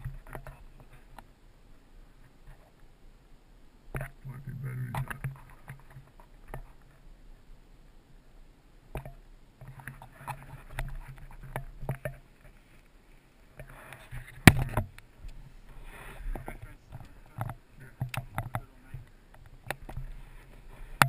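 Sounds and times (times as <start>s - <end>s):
rustling: 8.9s - 21.0s
sharp knock: 14.4s - 14.9s.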